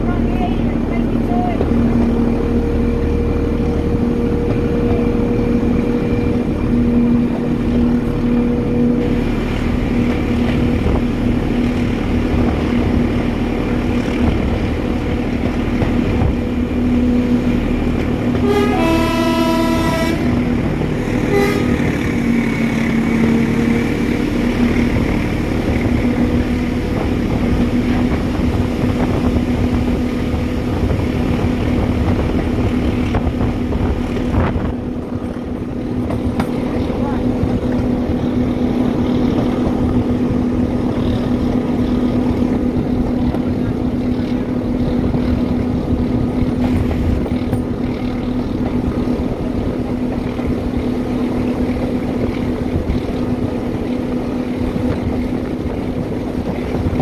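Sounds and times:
diesel locomotive engine drone: 0:00.0 - 0:57.0
wheels rumbling on track: 0:00.0 - 0:57.0
locomotive horn: 0:18.3 - 0:22.2.

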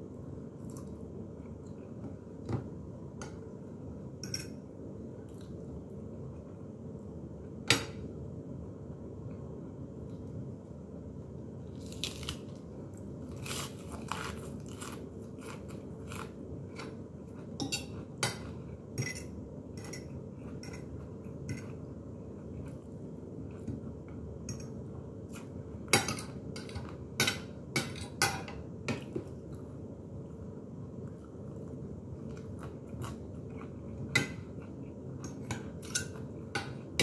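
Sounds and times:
steady low hum: 0:00.0 - 0:37.0
crunchy chewing of lettuce: 0:11.6 - 0:18.2, 0:32.2 - 0:35.2.

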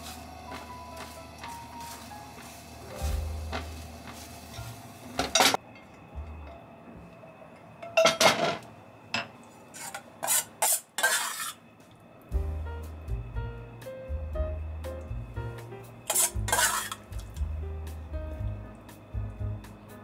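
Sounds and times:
soft background music: 0:00.0 - 0:07.8, 0:11.7 - 0:20.0
spatula scraping frying pan: 0:09.7 - 0:11.6, 0:16.1 - 0:17.0.

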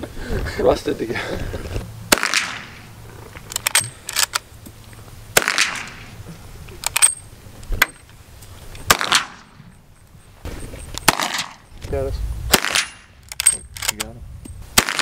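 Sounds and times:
rifle shots echoing: 0:02.1 - 0:02.9, 0:05.4 - 0:06.1, 0:08.9 - 0:09.6, 0:11.0 - 0:11.6, 0:12.5 - 0:13.6, 0:14.8 - 0:15.0
rifle lever metallic clicks: 0:03.4 - 0:04.4, 0:06.8 - 0:07.2, 0:12.7 - 0:14.6.

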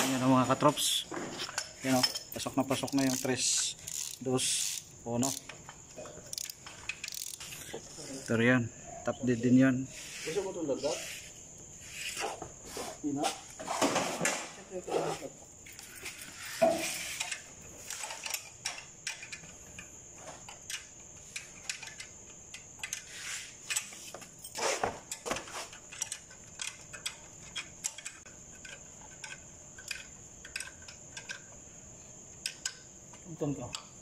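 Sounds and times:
metallic clicks of hand tools: 0:01.6 - 0:05.6, 0:06.2 - 0:07.7, 0:25.9 - 0:31.6.

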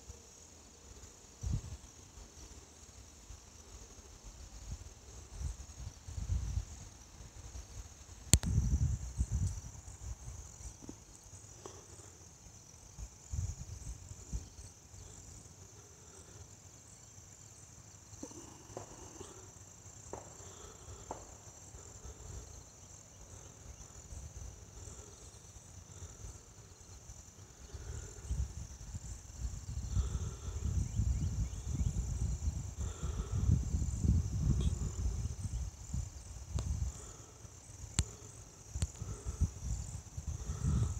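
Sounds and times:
crickets trilling: 0:00.0 - 0:40.9
wind buffeting microphone: 0:05.3 - 0:10.5, 0:27.7 - 0:37.0, 0:38.7 - 0:40.9.

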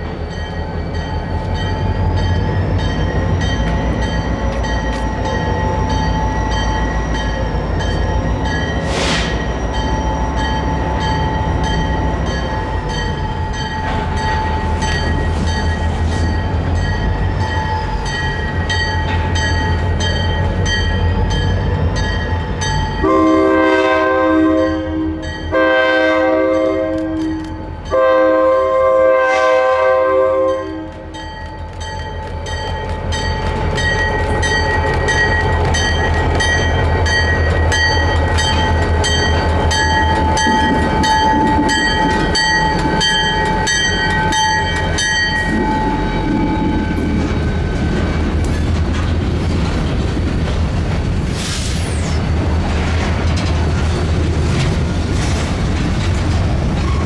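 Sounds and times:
diesel locomotive rumbling: 0:00.0 - 0:57.0
locomotive horn blasts: 0:23.0 - 0:31.2.

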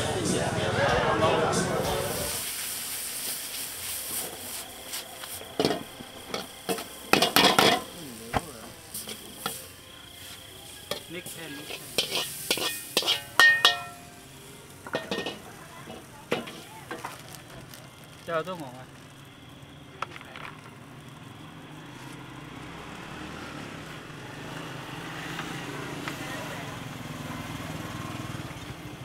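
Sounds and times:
frying sizzle: 0:01.7 - 0:29.0
metal utensils clinking on pans: 0:05.5 - 0:17.3.

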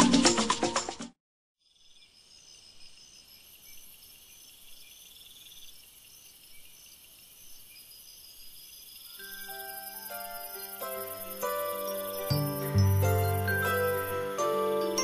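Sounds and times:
crickets and insects chirping: 0:01.6 - 0:15.0
soft chiming music: 0:09.2 - 0:15.0.

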